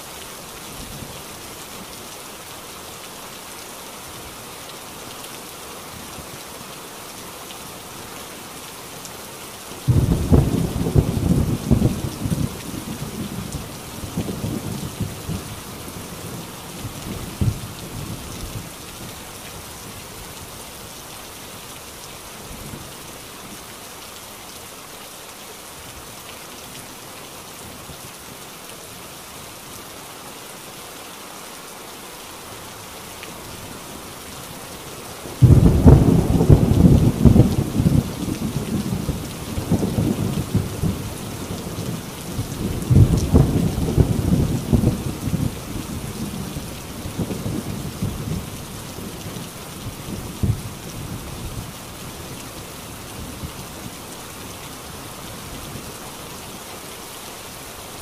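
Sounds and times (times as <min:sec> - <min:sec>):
heavy rain on a tin roof: 0:00.0 - 0:58.0
thunder rumbling: 0:09.9 - 0:15.6, 0:35.4 - 0:48.6
loud thunderclap: 0:35.4 - 0:39.1, 0:42.8 - 0:45.5.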